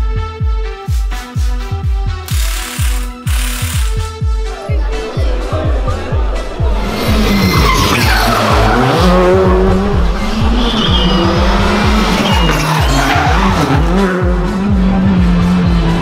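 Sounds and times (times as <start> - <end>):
background music with steady beat: 0.0 - 16.0
rally car engine revving: 5.4 - 16.0
tyre squeal: 7.2 - 9.1, 10.4 - 14.0.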